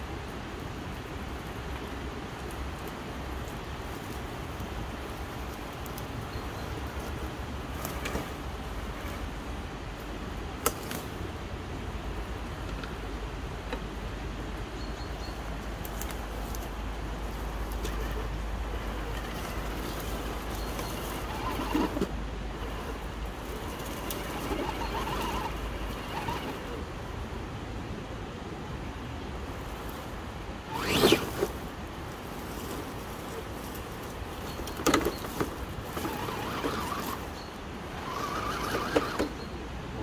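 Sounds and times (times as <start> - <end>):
leaves and twigs crackling: 0.9 - 9.3, 15.3 - 26.8, 29.5 - 39.3
toy car motor crawling: 6.8 - 9.2, 17.7 - 26.8, 30.6 - 31.6, 34.5 - 39.4.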